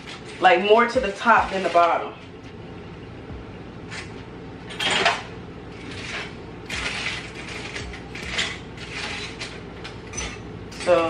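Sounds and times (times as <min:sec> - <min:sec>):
steady low hum: 0:00.0 - 0:11.0
scraping and rasping strokes: 0:05.7 - 0:09.6.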